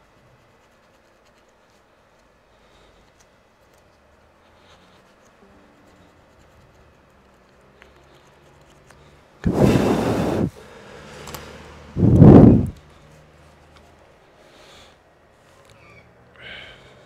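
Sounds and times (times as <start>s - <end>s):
cotton swab rubbing plastic: 0.0s - 10.6s
blown air bursts: 9.4s - 12.9s.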